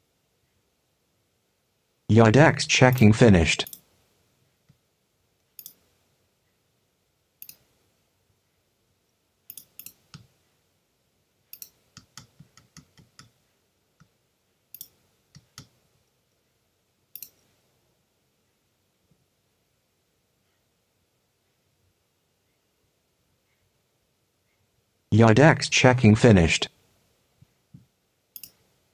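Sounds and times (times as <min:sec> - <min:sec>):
computer mouse clicks: 0:03.6 - 0:03.8, 0:05.6 - 0:05.8, 0:07.4 - 0:07.7, 0:09.5 - 0:10.3, 0:11.5 - 0:13.4, 0:14.7 - 0:15.8, 0:17.1 - 0:17.5, 0:28.4 - 0:28.6.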